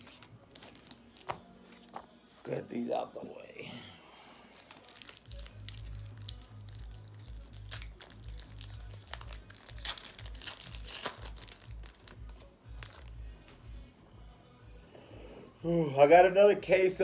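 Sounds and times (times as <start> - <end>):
foil pack crinkling and tearing: 0.0 - 1.4, 4.5 - 13.1.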